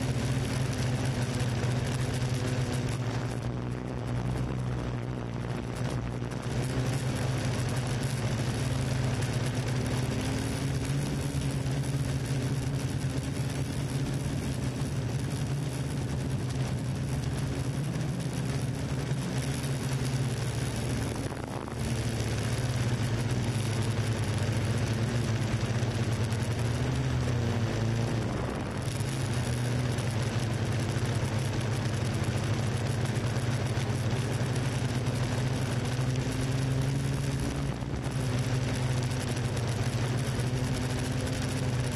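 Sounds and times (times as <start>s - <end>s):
drone propellers humming: 0.0s - 41.9s.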